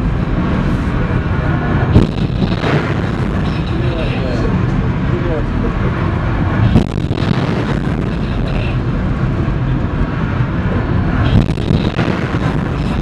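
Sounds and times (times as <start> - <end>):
missile booster roaring: 1.8 - 4.7, 6.4 - 9.1, 11.1 - 13.0
sharp bang: 1.9 - 3.9.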